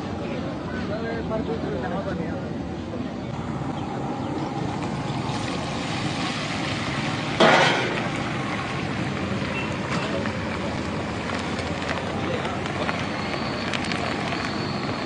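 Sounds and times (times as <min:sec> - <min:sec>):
chillies sizzling in hot oil: 0:04.8 - 0:15.0.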